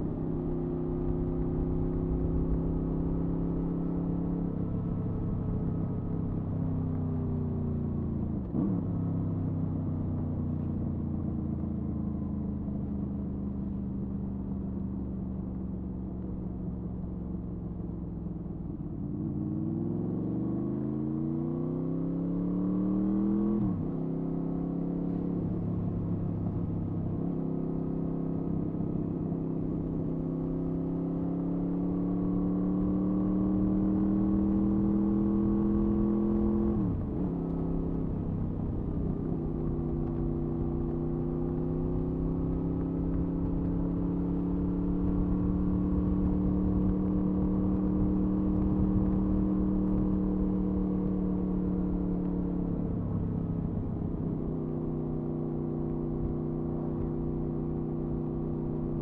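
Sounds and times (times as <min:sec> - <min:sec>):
motorcycle engine revving: 0:30.4 - 0:59.0.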